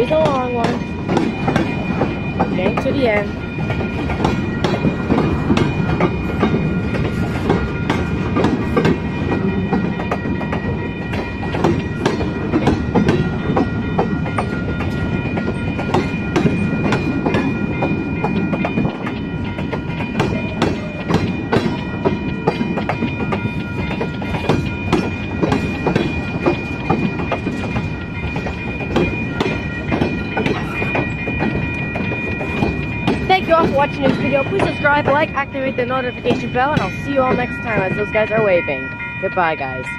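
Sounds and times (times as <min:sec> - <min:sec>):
high ringing tones: 0:00.0 - 0:39.9
train wheels clattering over joints: 0:00.0 - 0:39.9.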